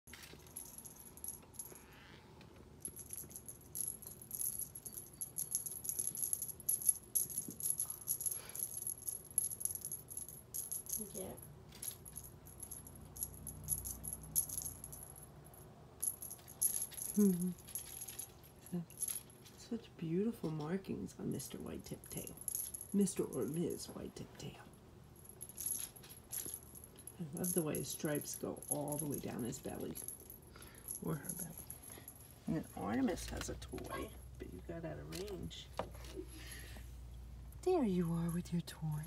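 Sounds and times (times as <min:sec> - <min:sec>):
cat wand toy rattling: 0:02.8 - 0:19.6, 0:21.4 - 0:24.0, 0:25.2 - 0:36.7.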